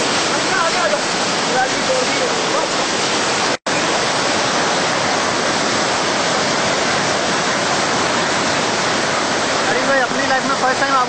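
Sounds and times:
floodwater torrent rushing: 0.0 - 11.0.

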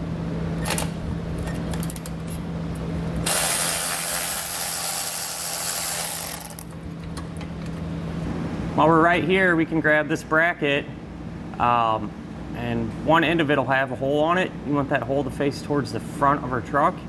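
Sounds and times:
cordless ratchet motor running: 3.2 - 6.8
ratchet clicks: 3.2 - 6.8.

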